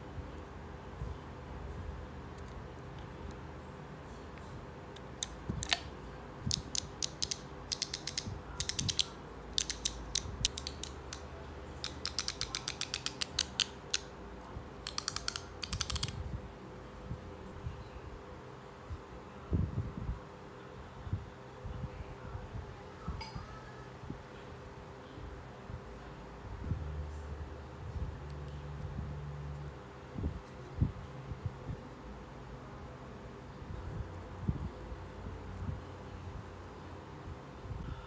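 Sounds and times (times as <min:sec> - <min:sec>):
bicycle hub ratcheting clicks: 0:06.5 - 0:11.2, 0:11.8 - 0:14.1, 0:14.8 - 0:16.2.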